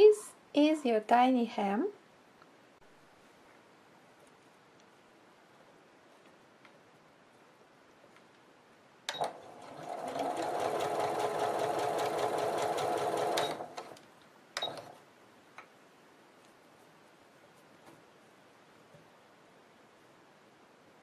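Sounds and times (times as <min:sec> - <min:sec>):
sewing machine stitching: 0:09.1 - 0:14.0, 0:14.6 - 0:15.0.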